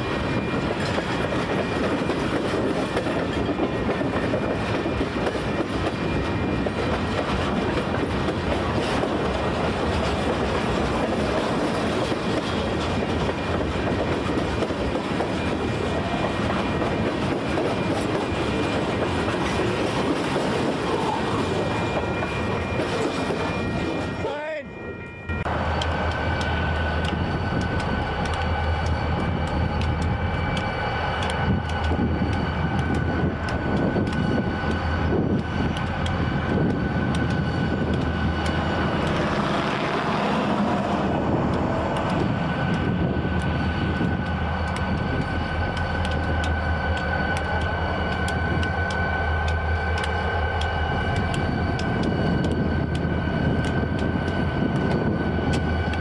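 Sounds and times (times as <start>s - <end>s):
diesel locomotive rumble: 25.2s - 56.0s
wheels clicking over rail joints: 25.4s - 56.0s.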